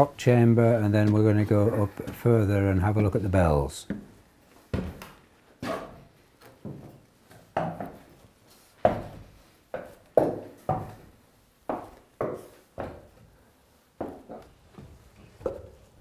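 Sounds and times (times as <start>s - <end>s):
footsteps on wooden stairs: 3.8s - 5.2s, 6.5s - 13.4s, 14.0s - 16.0s.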